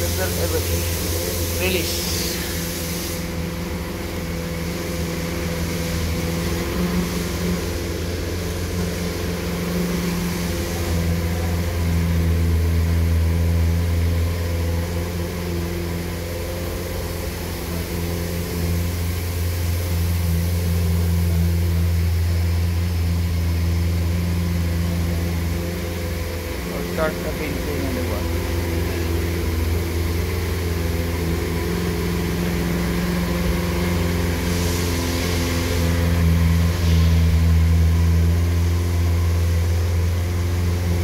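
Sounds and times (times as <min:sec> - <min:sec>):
low mechanical hum: 0:00.0 - 0:41.0.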